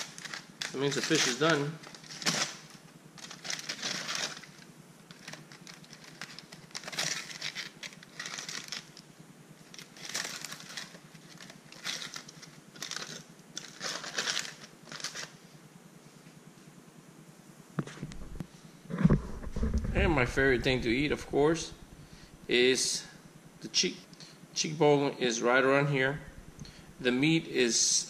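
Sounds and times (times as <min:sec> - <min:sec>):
aluminium foil crinkling: 0:00.0 - 0:15.4.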